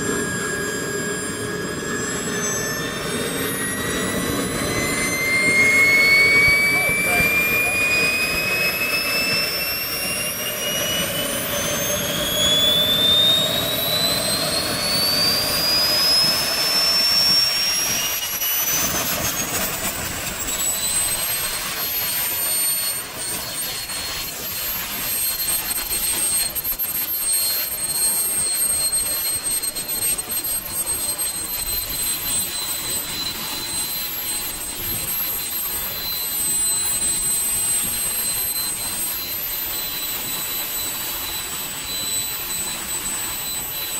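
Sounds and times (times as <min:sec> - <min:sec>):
jet turbine whine: 0:00.0 - 0:43.9
exhaust rush: 0:01.3 - 0:22.1.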